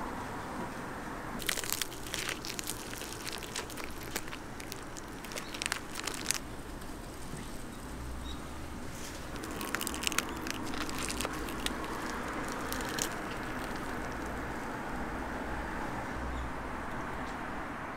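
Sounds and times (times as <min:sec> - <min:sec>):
crisp crust crackling: 0:01.4 - 0:07.3, 0:08.9 - 0:14.6.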